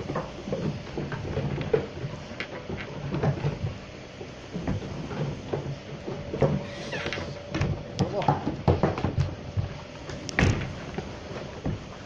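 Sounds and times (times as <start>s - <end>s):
hooves knocking on wooden floorboards: 4.6s - 11.9s.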